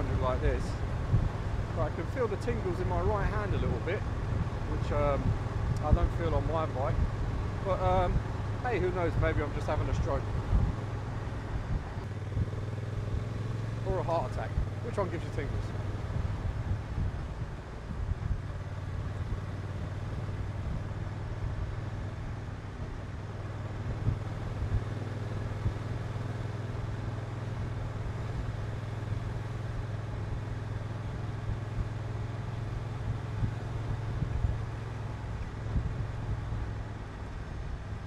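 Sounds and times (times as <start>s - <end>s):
wind buffeting microphone: 0.0s - 13.3s, 15.6s - 19.6s, 35.5s - 36.9s
motorcycle engine cruising: 0.0s - 38.0s.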